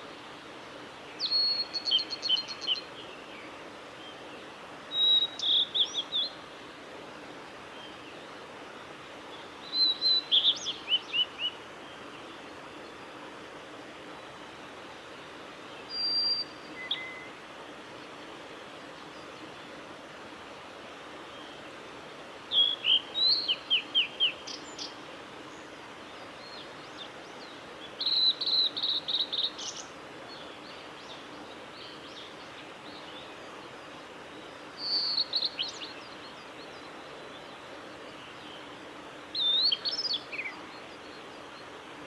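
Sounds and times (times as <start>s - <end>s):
steady background noise: 0.0s - 42.0s
bird singing whistled notes: 1.1s - 3.0s, 4.9s - 6.4s, 9.6s - 11.6s, 15.8s - 17.4s, 22.5s - 25.0s, 26.4s - 30.4s, 34.8s - 37.5s, 39.3s - 41.2s.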